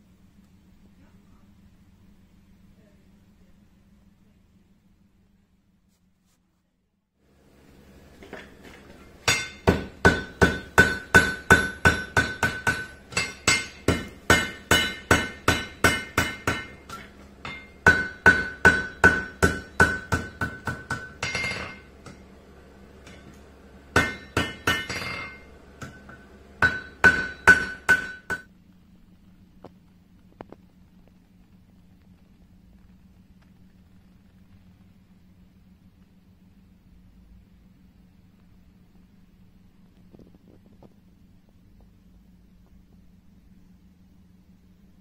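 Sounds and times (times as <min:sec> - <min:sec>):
hammer striking steel on anvil: 0:09.2 - 0:22.3, 0:23.0 - 0:28.5
anvil ringing: 0:09.3 - 0:22.2, 0:24.0 - 0:28.5.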